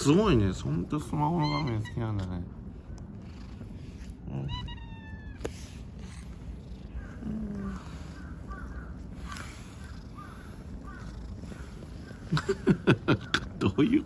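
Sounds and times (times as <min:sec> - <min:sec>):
cat meowing: 0:01.3 - 0:02.3, 0:04.0 - 0:06.3.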